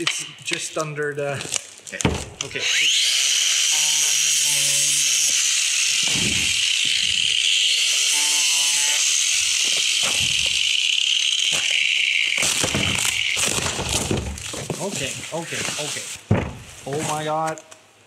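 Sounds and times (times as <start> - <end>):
angle grinder whine: 2.5 - 14.6.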